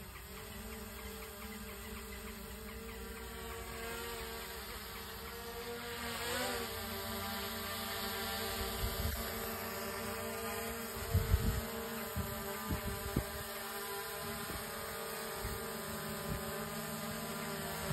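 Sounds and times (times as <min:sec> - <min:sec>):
drone propellers buzzing: 0:00.0 - 0:17.9.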